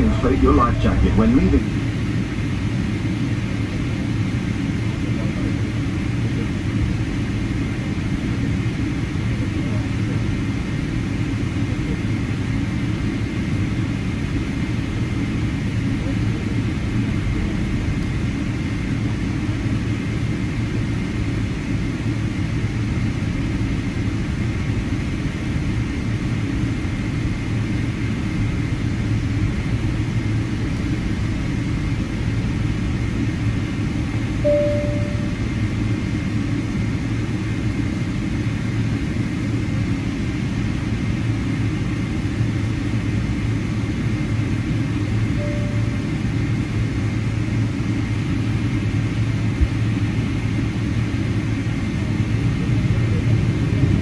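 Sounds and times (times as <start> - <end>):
aircraft engine low rumble: 0.0 - 54.0
faint high engine whine: 0.0 - 54.0
short beeps: 34.4 - 35.5, 45.4 - 46.1.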